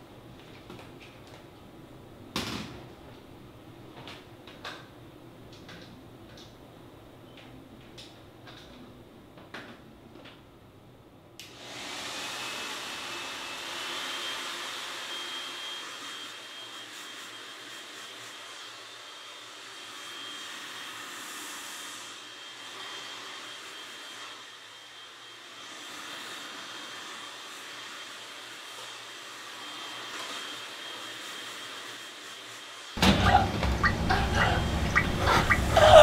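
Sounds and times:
hair dryer running: 11.4s - 36.0s.

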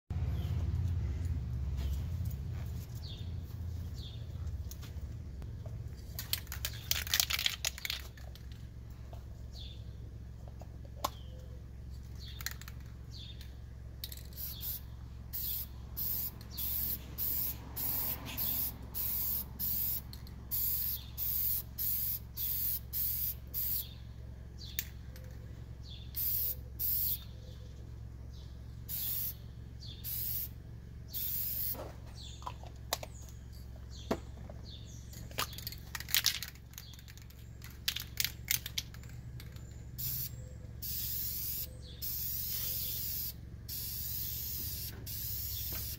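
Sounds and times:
spray cans clicking and knocking: 6.1s - 8.6s, 12.3s - 13.0s, 35.2s - 40.2s
spray paint can hissing: 14.1s - 23.9s, 26.2s - 27.2s, 28.9s - 29.4s, 30.0s - 31.8s, 40.0s - 45.9s.

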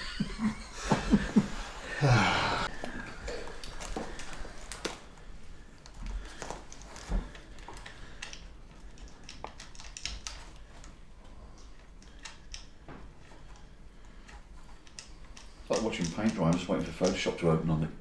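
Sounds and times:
light clicks and taps of gear: 5.8s - 17.5s.

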